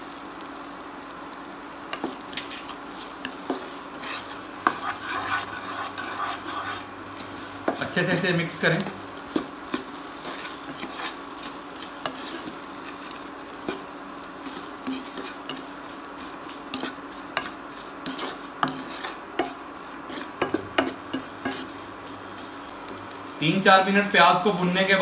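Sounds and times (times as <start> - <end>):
vegetables sizzling in oil: 0.0 - 25.0
spatula scraping and knocking pan: 3.2 - 7.9, 9.2 - 12.6, 13.6 - 21.8.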